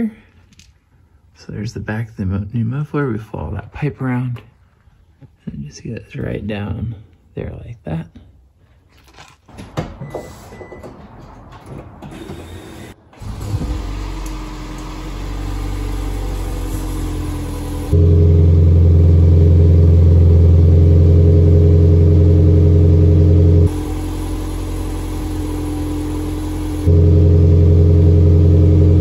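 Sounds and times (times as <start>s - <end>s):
smooth engine running: 12.5s - 29.0s
loud throaty engine: 13.2s - 29.0s.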